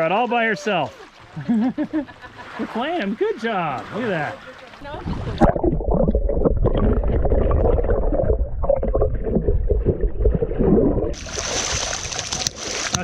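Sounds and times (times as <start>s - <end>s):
underwater rumbling and gurgling: 4.8s - 13.0s.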